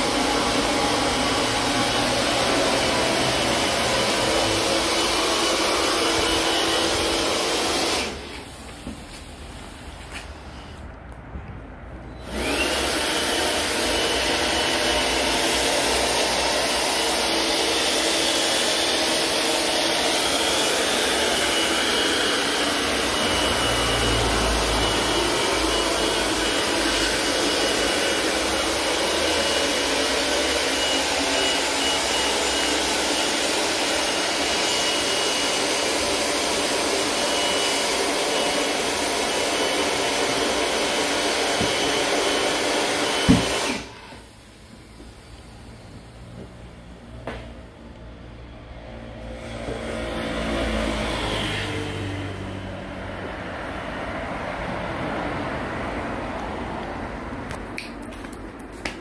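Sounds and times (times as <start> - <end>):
electric air pump whining: 0.0 - 11.1, 12.0 - 46.6.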